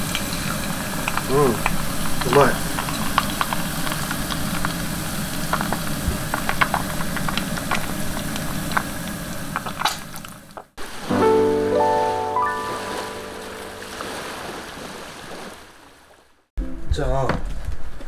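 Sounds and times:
oil bubbling with pops: 0:00.0 - 0:10.8
music: 0:11.1 - 0:14.2, 0:16.6 - 0:17.4.

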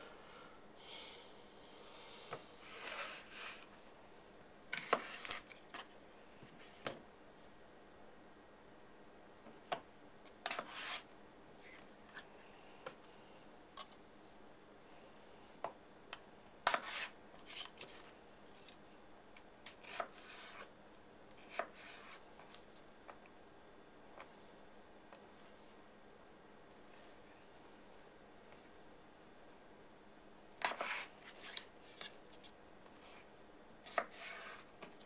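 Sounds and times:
knife scraping through potato: 0:02.6 - 0:03.7, 0:04.7 - 0:05.6, 0:10.4 - 0:11.1, 0:16.6 - 0:18.0, 0:19.7 - 0:20.7, 0:21.4 - 0:22.2, 0:30.6 - 0:32.2, 0:33.0 - 0:34.7.

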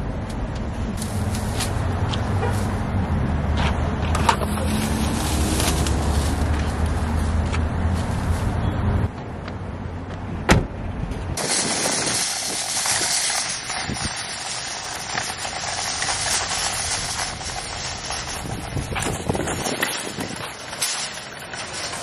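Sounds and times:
shopping cart rattling on concrete: 0:04.2 - 0:07.2, 0:11.4 - 0:22.0
car door shutting: 0:10.5 - 0:10.8.

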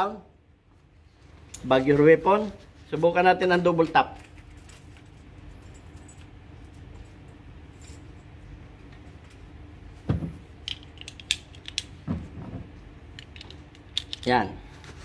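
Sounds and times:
metallic clicks and rattles: 0:10.6 - 0:11.9, 0:13.1 - 0:14.4.

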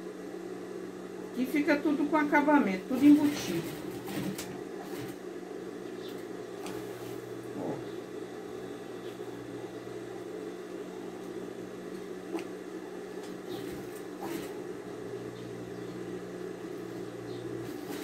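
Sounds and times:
sewing machine running: 0:02.9 - 0:05.2, 0:13.6 - 0:14.6, 0:17.6 - 0:18.0.

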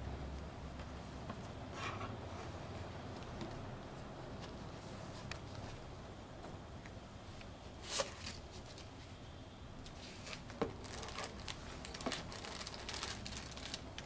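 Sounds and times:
plastic bags crinkling: 0:10.2 - 0:14.0.

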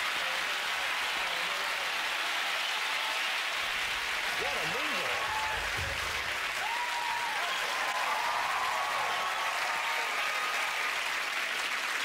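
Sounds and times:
audience applauding: 0:00.0 - 0:12.0
cheering voices: 0:00.0 - 0:12.0.

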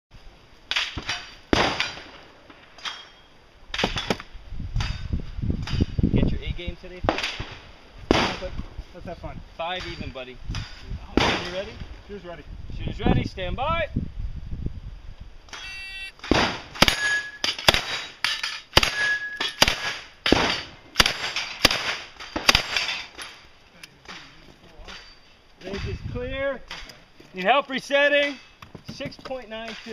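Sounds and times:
submachine gun single shots: 0:00.7 - 0:02.2, 0:16.2 - 0:18.1, 0:18.8 - 0:23.0
sharp bangs and clacks: 0:09.6 - 0:11.8, 0:16.2 - 0:26.0
steel plate ringing: 0:16.8 - 0:19.7.

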